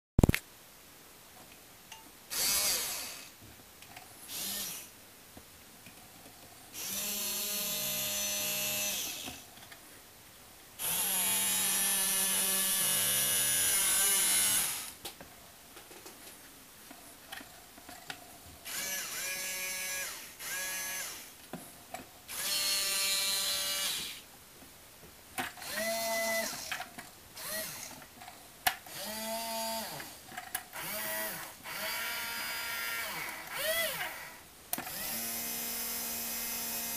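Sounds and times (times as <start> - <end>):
small motors whining: 6.8 - 9.4, 10.8 - 15.0, 18.7 - 21.3, 25.6 - 26.8, 27.4 - 28.0, 30.8 - 36.9.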